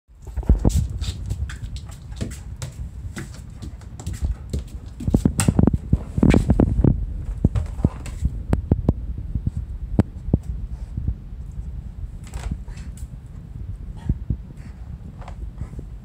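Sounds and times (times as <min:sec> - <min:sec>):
dog claws clicking on floor: 0:00.2 - 0:06.5.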